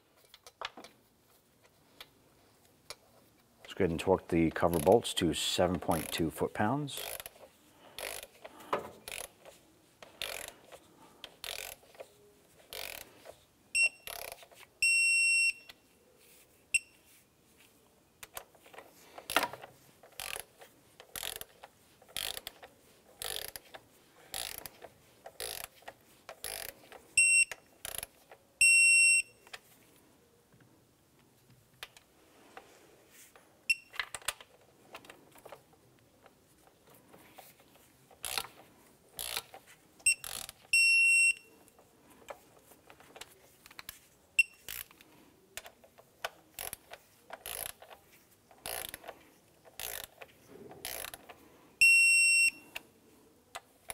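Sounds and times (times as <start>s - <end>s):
torque wrench ratcheting: 5.9s - 6.2s, 7.0s - 7.4s, 8.0s - 9.4s, 10.0s - 12.0s, 12.7s - 13.1s, 14.0s - 14.4s, 20.1s - 23.7s, 24.3s - 28.2s, 38.2s - 38.5s, 39.2s - 40.6s, 46.6s - 47.9s, 48.6s - 49.1s, 49.7s - 50.2s, 50.8s - 51.3s.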